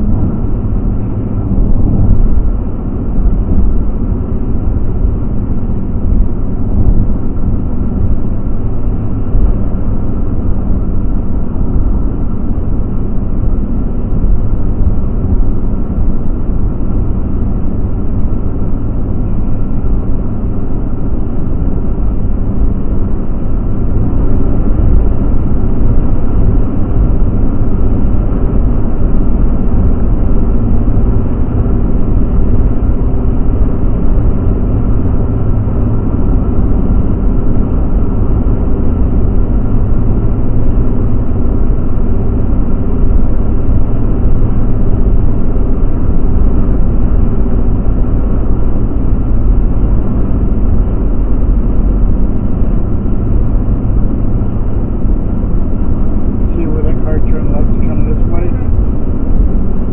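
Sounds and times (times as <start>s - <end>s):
car engine hum: 0.0s - 59.9s
tyre road rumble: 0.0s - 59.9s.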